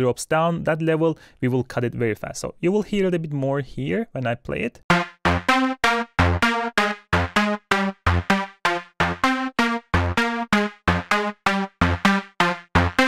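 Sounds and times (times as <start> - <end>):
synth pluck melody: 4.9 - 13.0.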